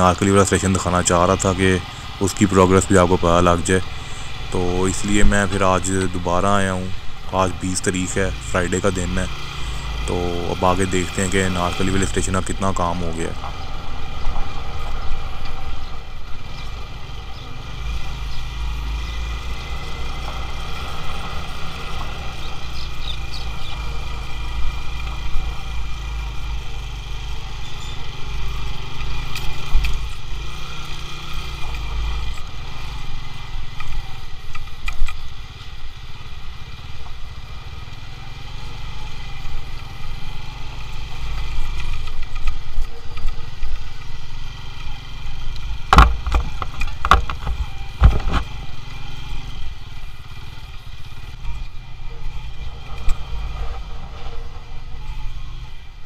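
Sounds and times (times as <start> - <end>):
motorcycle engine rumbling: 0.0 - 56.0
knocks from bumps: 45.9 - 48.5.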